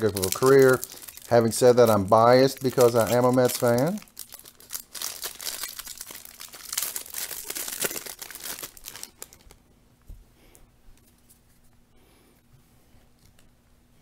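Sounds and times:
plastic wrapper crinkling and tearing: 0.0s - 9.6s.

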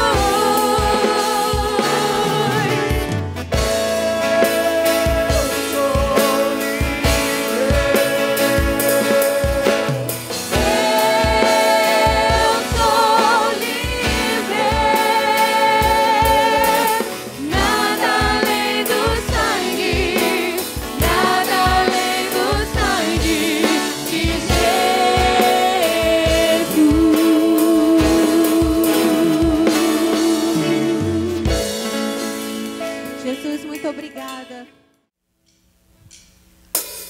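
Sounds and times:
singers singing gospel song: 0.0s - 31.7s
keyboard: 0.0s - 35.0s.

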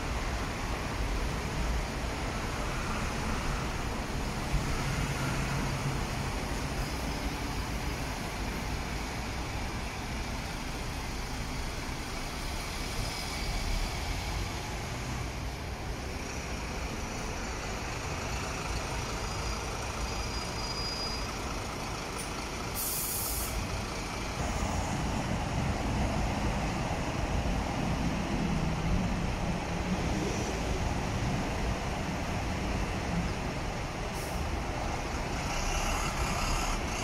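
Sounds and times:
buses and road traffic: 0.0s - 37.0s
bus air brakes hissing: 19.2s - 21.4s, 22.1s - 23.8s, 34.0s - 34.6s.

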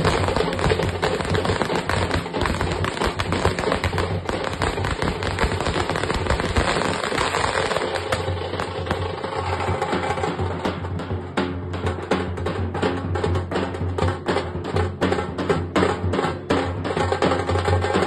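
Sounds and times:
firecrackers bursting: 0.0s - 10.9s.

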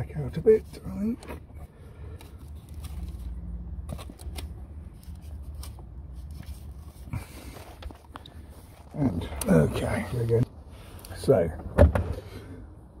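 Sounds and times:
rustling of hands handling wires: 0.9s - 10.4s.

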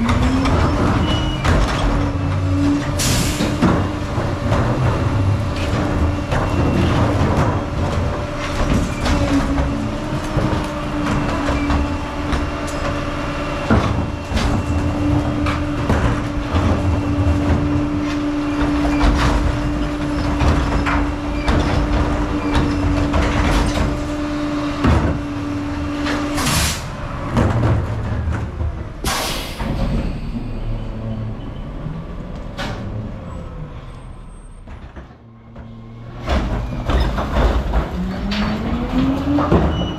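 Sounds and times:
trash carts knocking and banging: 0.0s - 31.1s, 34.3s - 39.9s
garbage truck engine humming: 0.0s - 39.9s
air-brake hisses: 29.1s - 29.8s.

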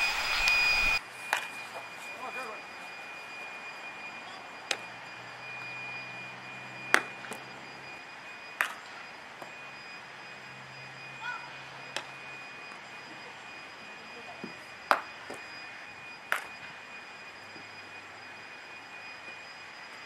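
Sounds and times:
low hum: 0.0s - 1.9s
faint high steady tone: 0.0s - 20.0s.

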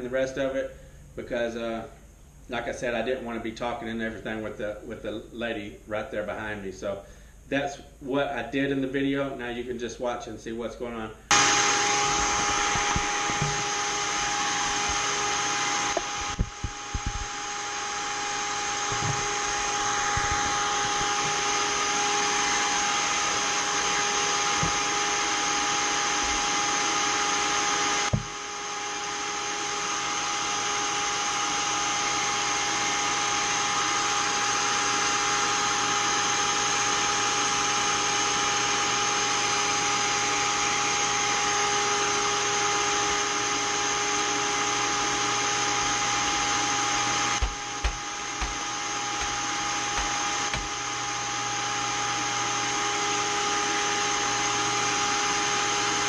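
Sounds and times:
blower motor whine: 11.3s - 56.0s
knocks: 28.1s - 28.4s, 47.4s - 48.6s.

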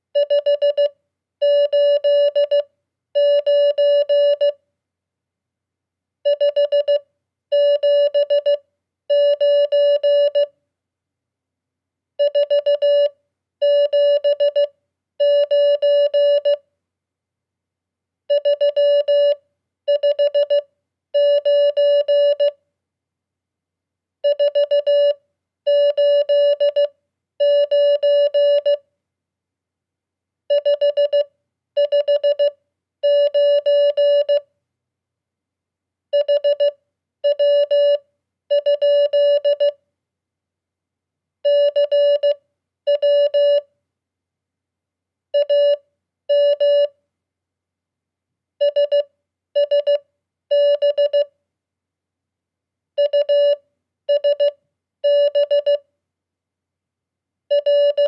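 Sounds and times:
morse code beeping tone: 3.2s - 4.5s, 7.6s - 10.5s, 21.2s - 22.5s, 25.7s - 28.8s, 33.1s - 34.4s.

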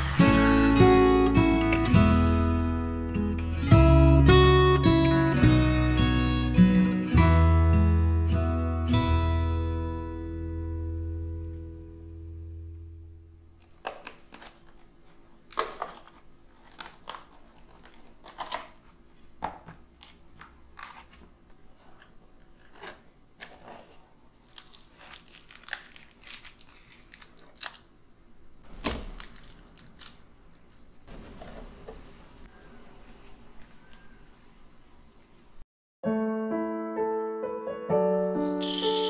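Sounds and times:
paper crinkling: 13.8s - 27.9s, 28.7s - 30.7s.

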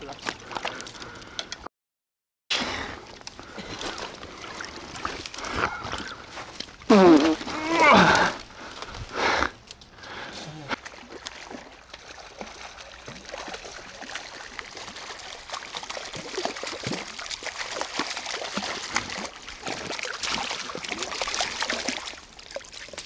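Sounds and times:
fish splashing at water surface: 10.7s - 23.0s.

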